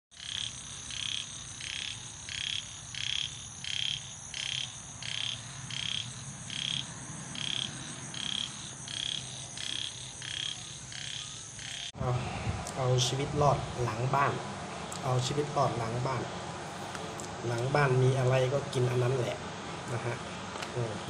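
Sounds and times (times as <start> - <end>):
frog calling: 0.1 - 12.0.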